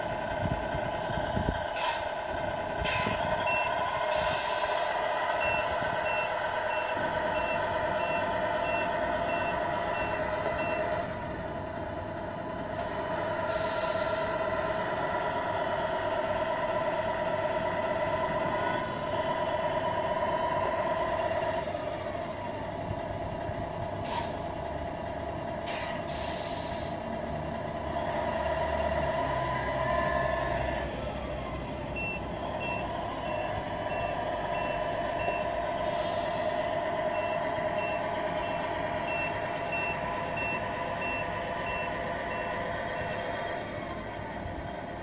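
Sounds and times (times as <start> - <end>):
diesel truck engine running: 0.0 - 45.0
reversing beeper: 2.9 - 11.1, 12.3 - 14.3, 31.9 - 43.4
air brake hisses: 4.1 - 4.9, 13.4 - 14.4, 24.0 - 24.5, 25.6 - 27.0, 35.8 - 36.8.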